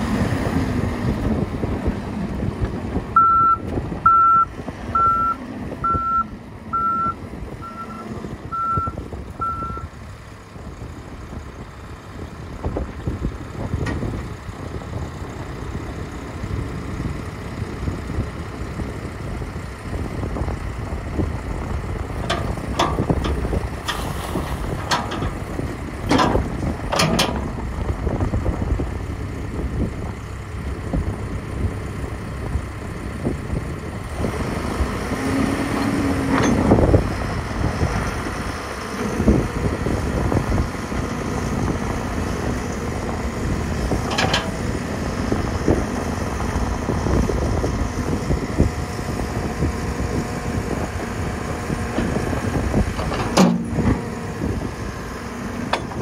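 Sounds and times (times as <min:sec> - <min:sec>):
backhoe diesel engine running: 0:00.0 - 0:56.0
clunks from backhoe arm: 0:53.0 - 0:54.0.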